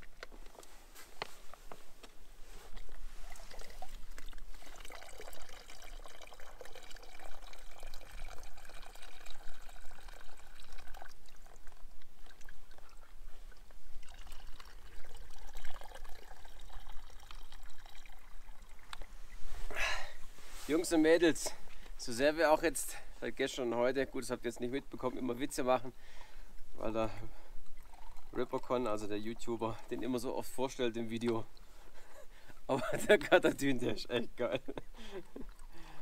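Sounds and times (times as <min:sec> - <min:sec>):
water streaming into plastic bottle: 0:02.6 - 0:19.1, 0:22.8 - 0:32.2.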